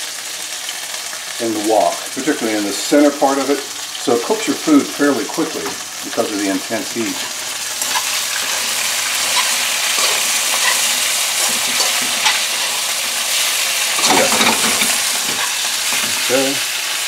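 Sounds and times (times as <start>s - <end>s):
chicken sizzling in oil: 0.0s - 17.0s
metal utensil scraping a wok: 7.2s - 16.6s.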